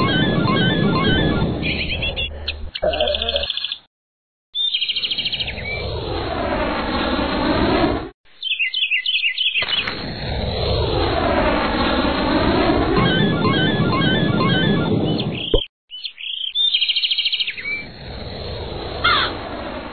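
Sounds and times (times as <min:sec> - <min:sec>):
rapid high bird chirps: 0:00.0 - 0:03.9, 0:04.6 - 0:05.8, 0:08.4 - 0:09.9, 0:13.0 - 0:17.9
rushing flyby whoosh: 0:05.2 - 0:08.1, 0:09.9 - 0:15.4, 0:17.8 - 0:19.9.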